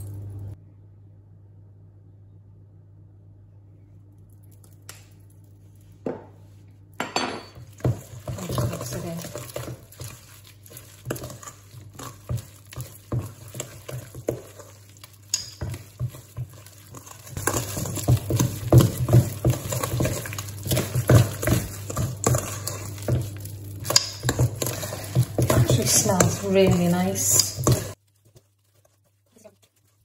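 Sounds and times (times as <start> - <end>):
wooden spoon beating batter in bowl: 7.6 - 30.0.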